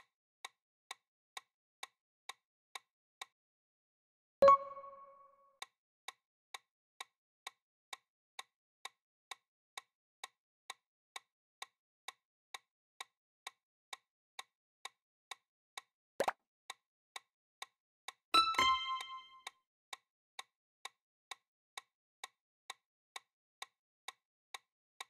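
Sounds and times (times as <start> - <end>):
timer ticking: 4.4 - 5.3, 18.4 - 19.4.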